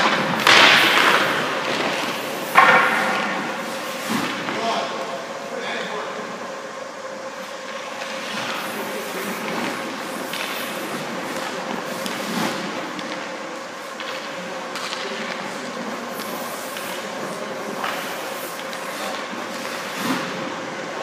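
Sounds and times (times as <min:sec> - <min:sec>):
faint constant hum: 0:00.0 - 0:21.0
skate blades scraping ice: 0:07.9 - 0:12.7, 0:15.6 - 0:20.4.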